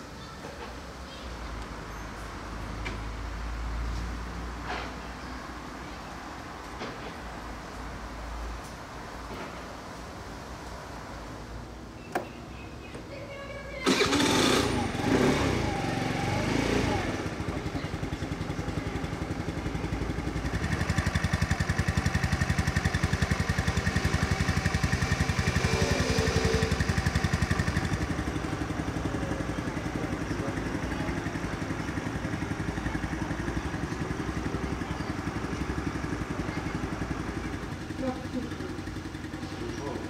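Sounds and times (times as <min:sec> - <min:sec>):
scooter engine running: 0:13.8 - 0:40.0.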